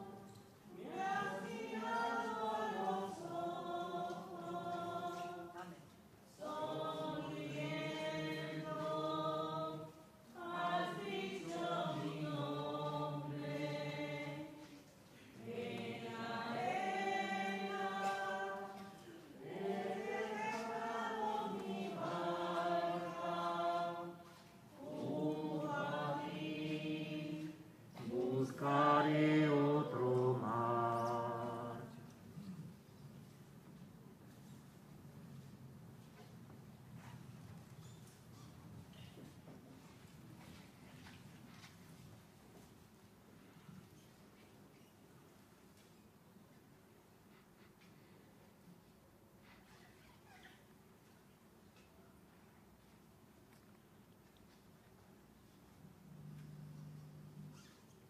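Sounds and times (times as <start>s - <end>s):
voices singing a slow hymn: 0.0s - 32.8s.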